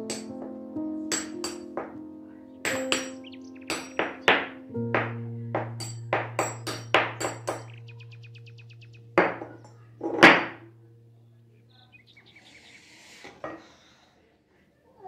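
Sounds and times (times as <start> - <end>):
low hum: 4.7 - 12.4
wooden spoon knocking glass bowl: 5.0 - 7.8.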